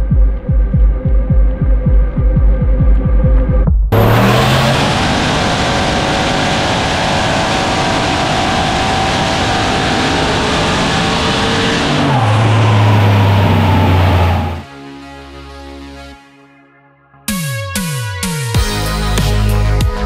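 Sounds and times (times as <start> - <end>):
car engine running hard on dyno: 4.0 - 14.6.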